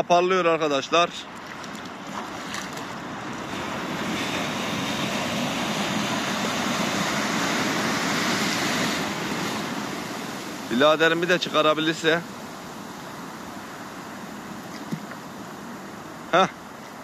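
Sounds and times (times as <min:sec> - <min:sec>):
small waves breaking: 0:00.8 - 0:17.0.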